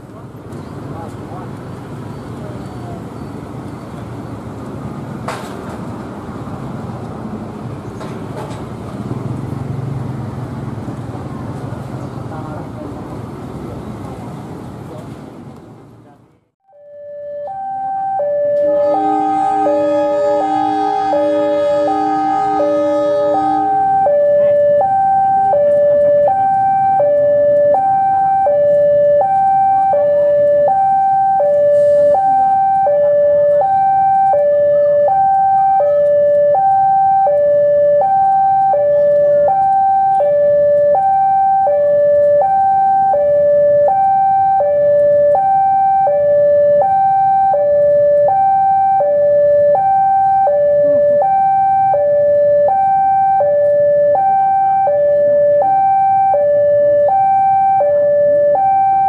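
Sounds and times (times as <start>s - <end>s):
two-tone electronic warning alarm: 16.7s - 59.0s
diesel locomotive engine running: 17.5s - 29.2s.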